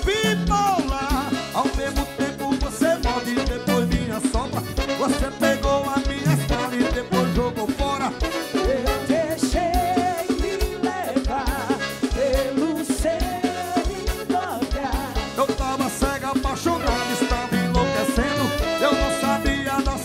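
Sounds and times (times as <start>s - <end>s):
accordion: 0.0s - 20.0s
electric guitars: 0.0s - 20.0s
live band playing: 0.0s - 20.0s
horn melody: 2.9s - 11.0s, 15.2s - 20.0s.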